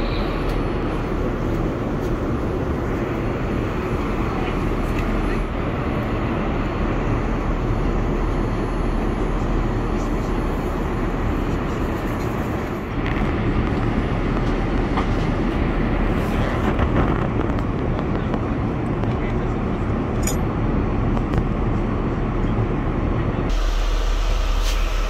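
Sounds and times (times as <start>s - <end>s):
airliner cabin drone: 0.0s - 25.0s.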